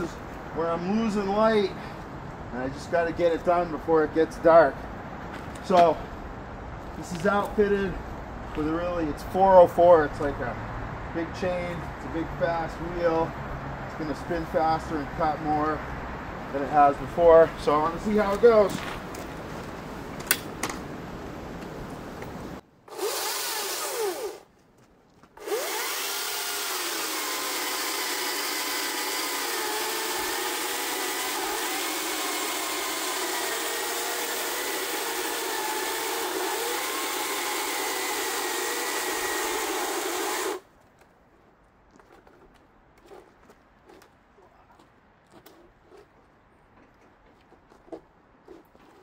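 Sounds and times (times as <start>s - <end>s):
chainsaw cutting log: 22.9s - 24.5s, 25.4s - 40.6s.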